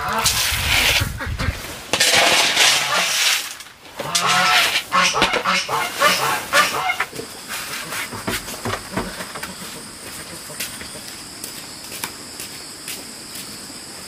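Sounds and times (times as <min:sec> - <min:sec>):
ducks quacking: 0:01.0 - 0:01.8, 0:04.0 - 0:08.3, 0:08.9 - 0:11.1.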